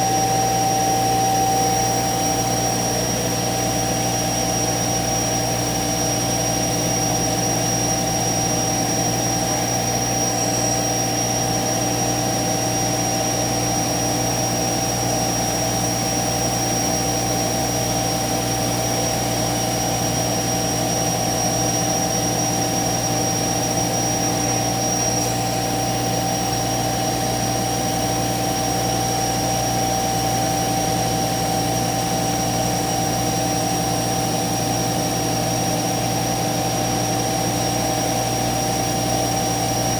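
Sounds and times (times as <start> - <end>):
machine hum: 0.0 - 11.8
router spindle whine: 0.0 - 39.9.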